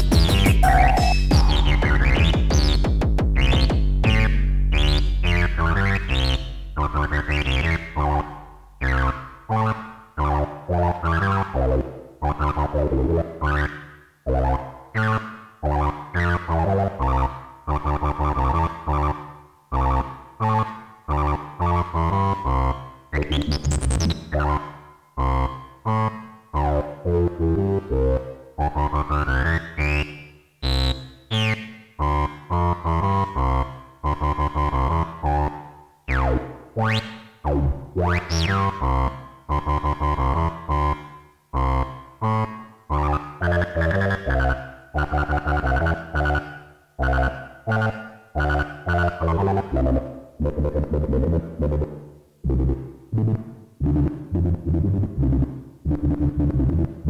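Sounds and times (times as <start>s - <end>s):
drum machine beats: 0.0s - 4.9s
synth bass line: 0.0s - 57.0s.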